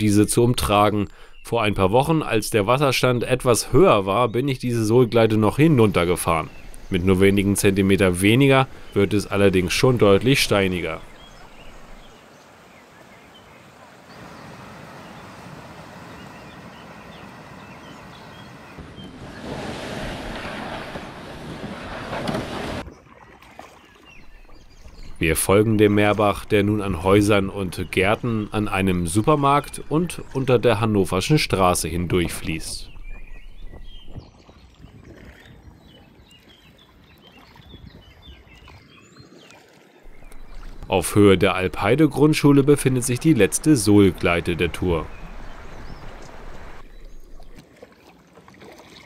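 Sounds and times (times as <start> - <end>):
songbirds chirping: 0.0 - 47.6
stream water rushing over rocks: 6.1 - 22.8, 40.1 - 47.7.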